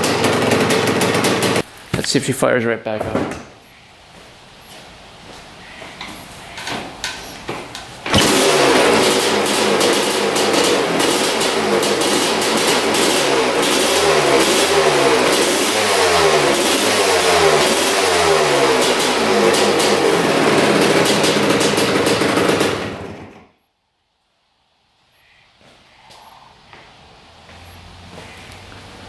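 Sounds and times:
two-stroke engine revving: 0.0s - 1.7s, 8.1s - 23.4s.

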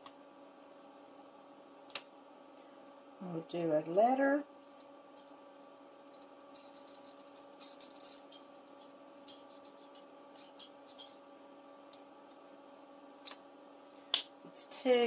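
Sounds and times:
steady low hum: 0.0s - 15.0s
marker pen scratching on paper: 4.6s - 11.2s.

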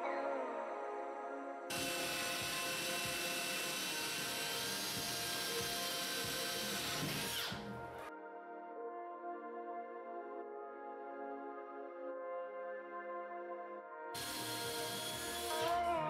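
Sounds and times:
cordless drill whining: 1.7s - 8.0s, 14.2s - 15.9s.

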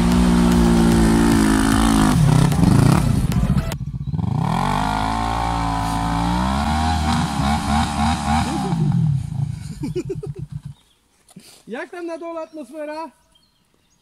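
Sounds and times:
quad bike engine revving: 0.0s - 10.8s.

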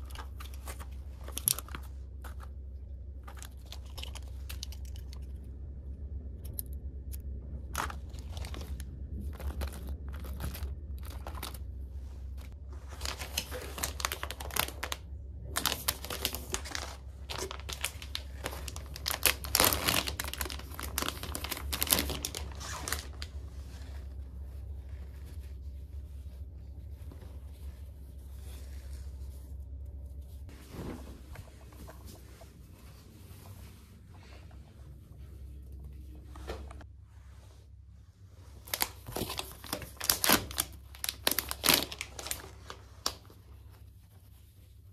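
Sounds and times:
plastic packaging crinkling: 0.0s - 5.4s, 7.6s - 24.2s, 38.6s - 43.4s
steady low hum: 0.0s - 44.9s.

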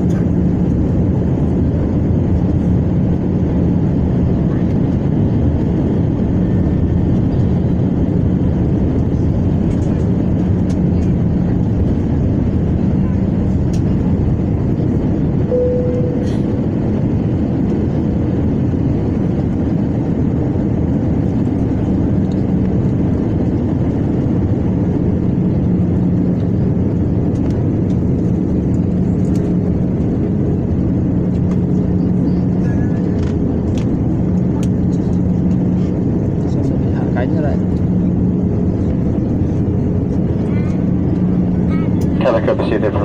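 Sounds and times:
jet engine and airflow rush: 0.0s - 43.0s
low steady hum: 8.2s - 19.8s.

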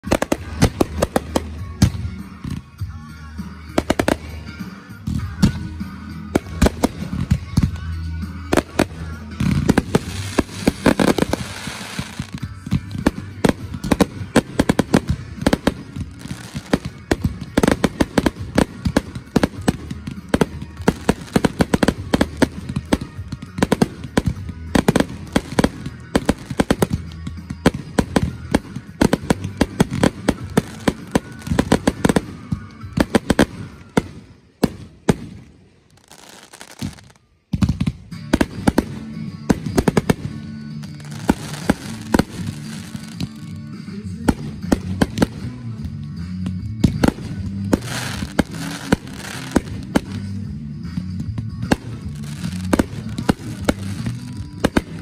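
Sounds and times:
firework bangs and crackles: 0.0s - 55.0s.

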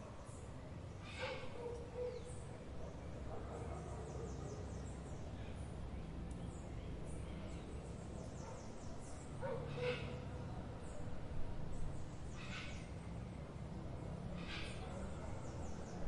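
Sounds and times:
birds chirping: 0.2s - 16.0s
distant dog barking: 1.1s - 4.8s, 8.4s - 8.8s, 9.4s - 10.2s.

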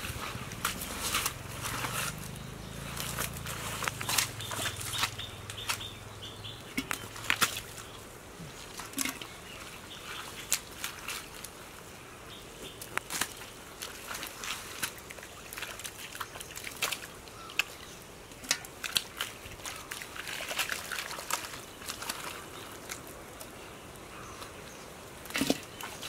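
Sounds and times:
hands squelching in wet mud: 0.0s - 6.0s, 6.7s - 11.8s, 12.7s - 24.6s
small splashes: 0.0s - 11.8s, 12.7s - 24.6s, 25.2s - 26.0s
trickling water: 0.0s - 26.0s
loud mud splat: 2.9s - 5.9s
wet clicks: 6.7s - 7.8s.

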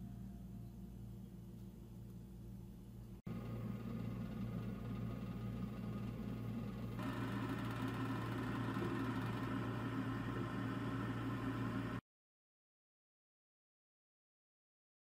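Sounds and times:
oven motor hum: 2.4s - 12.0s.

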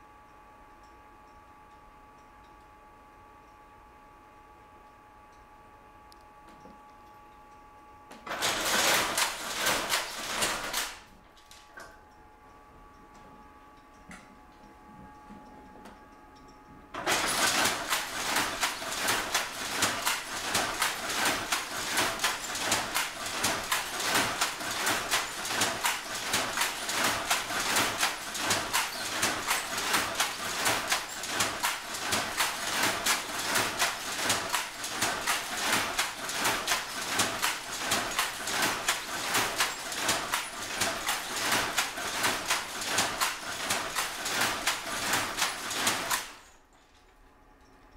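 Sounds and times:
power loom clatter: 8.2s - 12.0s, 16.9s - 46.6s.

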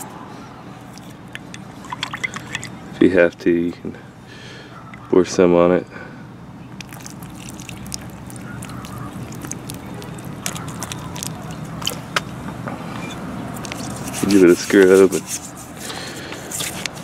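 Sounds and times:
low background hum: 0.0s - 17.0s
liquid spattering and dripping: 0.9s - 2.7s, 6.8s - 12.1s.

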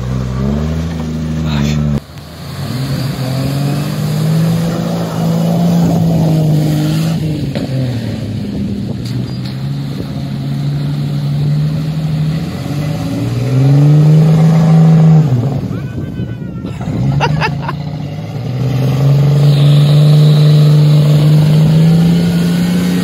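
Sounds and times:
engine revving under load: 0.0s - 15.8s, 16.8s - 23.0s
water sloshing around wheels: 2.0s - 15.7s.

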